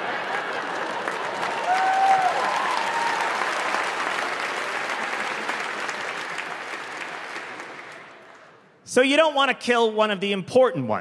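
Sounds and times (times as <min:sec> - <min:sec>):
audience applauding: 0:00.0 - 0:08.6
person cheering: 0:01.6 - 0:03.5.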